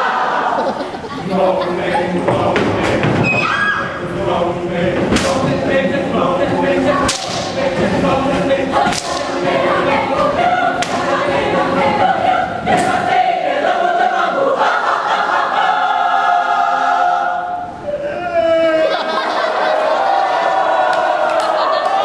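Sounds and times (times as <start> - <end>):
choir singing in harmony: 0.0 - 17.8
sharp percussive hits: 7.0 - 7.6.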